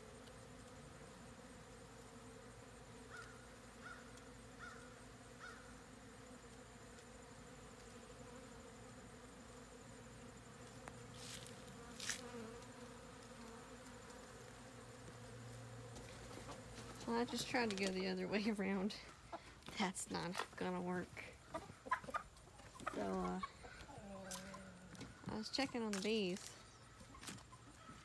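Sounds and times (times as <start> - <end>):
bees buzzing: 0.0 - 28.0.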